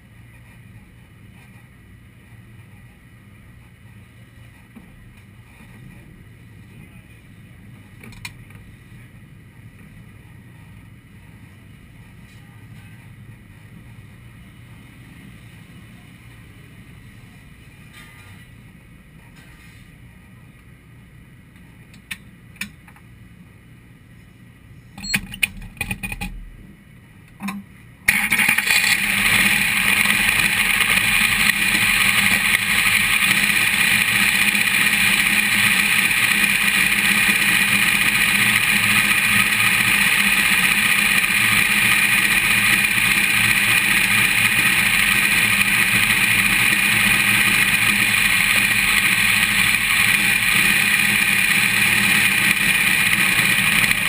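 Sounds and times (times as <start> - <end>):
race car engine running: 28.1 - 54.0.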